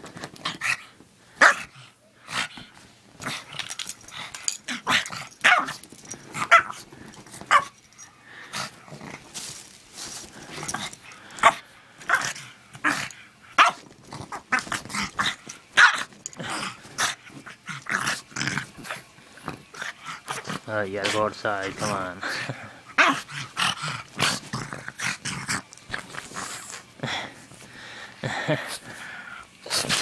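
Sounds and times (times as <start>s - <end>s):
dog growling: 10.4s - 27.2s.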